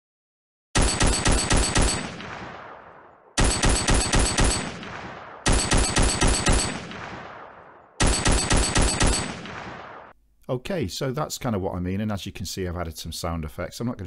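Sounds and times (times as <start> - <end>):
machine-gun bursts with echo: 0.8 - 10.1.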